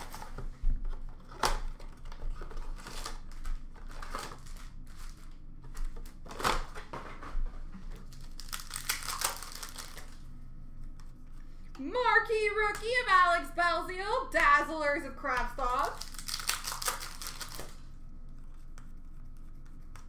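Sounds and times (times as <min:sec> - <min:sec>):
card packs crinkling: 0:01.1 - 0:07.1, 0:08.0 - 0:10.2, 0:15.5 - 0:17.8.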